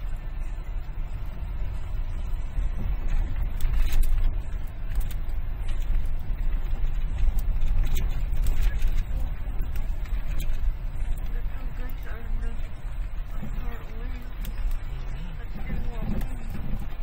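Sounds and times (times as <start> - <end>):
car tyres rumbling on dirt: 0.0 - 17.0.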